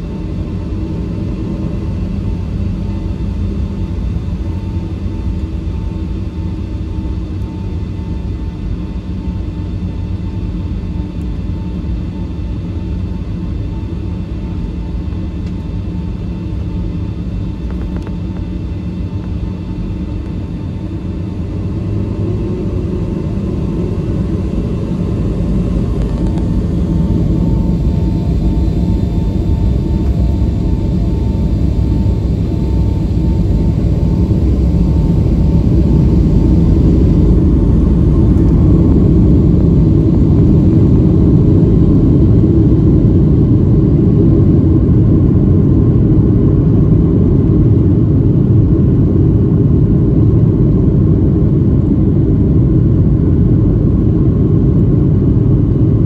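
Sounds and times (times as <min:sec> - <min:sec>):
jet engines deep rumble: 0:00.0 - 0:56.0.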